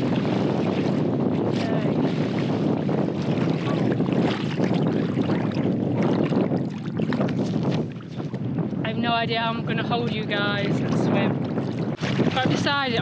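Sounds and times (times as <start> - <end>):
sea water splashing: 0.0 - 8.5, 9.8 - 13.0
wind buffeting microphone: 0.0 - 13.0.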